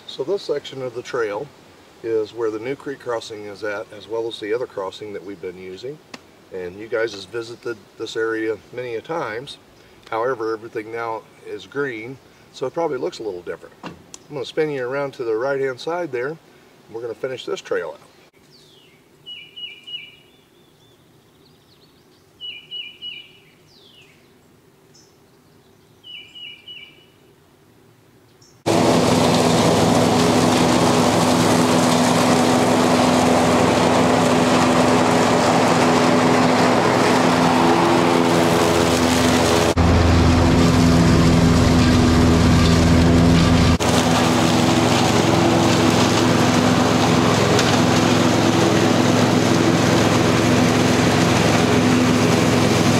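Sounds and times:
bird chirping: 18.0 - 27.3
mower engine running: 28.7 - 52.9.

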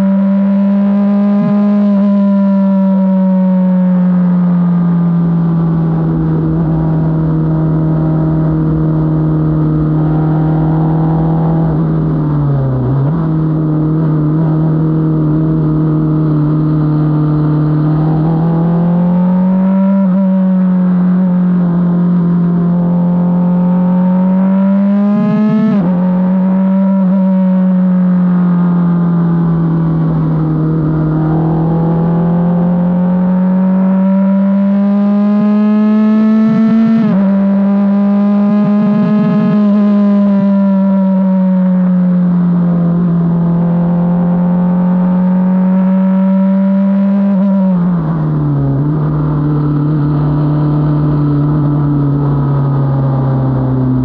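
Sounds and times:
race car engine revving: 0.0 - 54.0
wind and road noise: 0.0 - 54.0.

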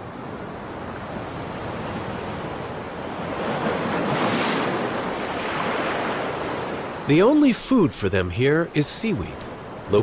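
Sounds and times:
surf breaking over rocks: 3.1 - 9.3.

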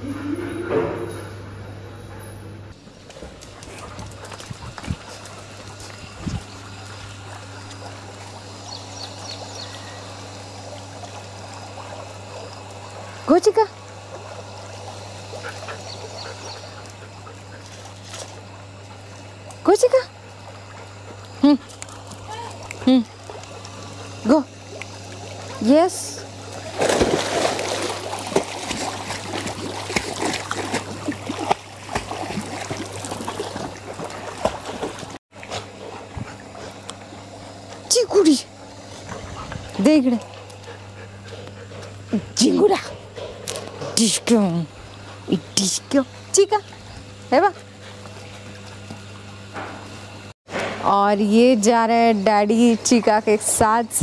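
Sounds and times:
low steady hum: 0.0 - 54.0
dog paddling in water: 2.8 - 49.5
big splash in pool: 26.7 - 35.0.

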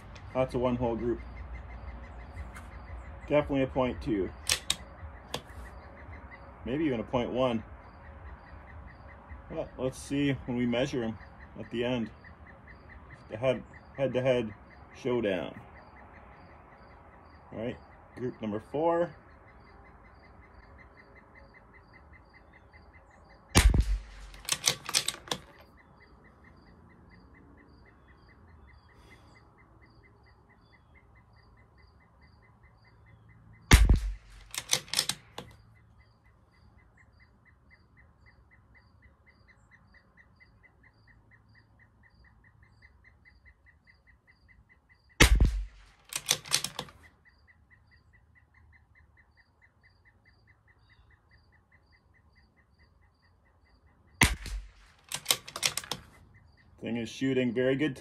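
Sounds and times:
bird chirping: 0.0 - 58.0
rifle bolt clicks: 4.4 - 5.6, 23.6 - 25.7, 33.7 - 35.6, 45.2 - 47.0, 54.2 - 56.2
rifle shots: 23.6 - 25.5, 33.7 - 35.3, 45.2 - 46.9, 54.2 - 56.0.

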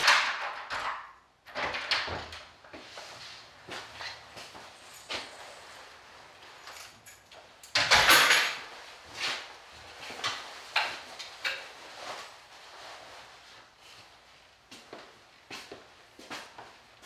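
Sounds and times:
footsteps on a hard floor: 2.7 - 6.0, 14.7 - 16.8.

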